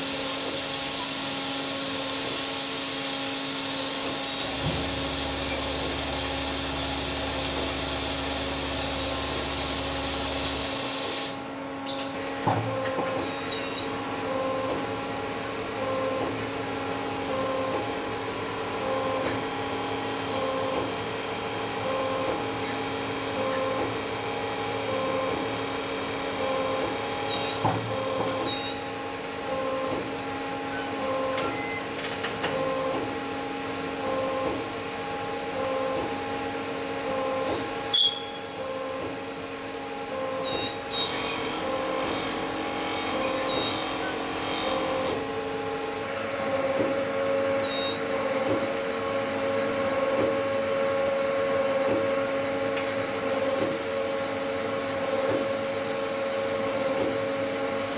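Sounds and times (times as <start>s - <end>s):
machine tool whining: 35.1s - 46.8s.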